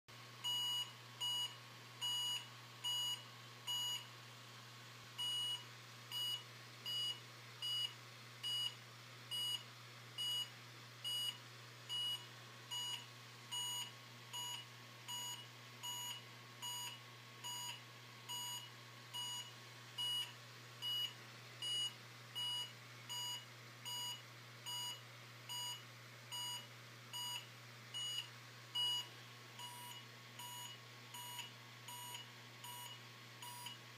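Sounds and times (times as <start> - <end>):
short square-wave beeps: 13.6 - 25.8, 28.0 - 33.8.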